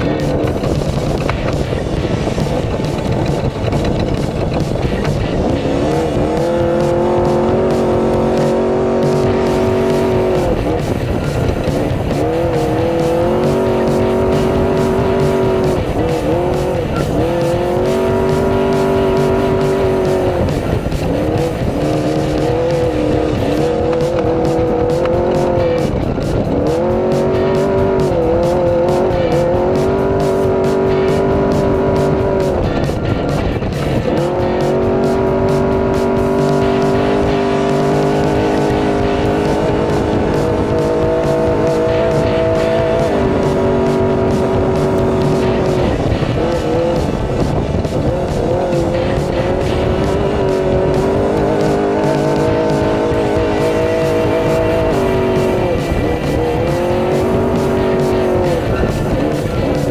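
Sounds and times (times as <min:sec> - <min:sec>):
loud rushing noise with rattling: 0:00.0 - 0:59.9
truck engine revving: 0:00.0 - 0:59.9.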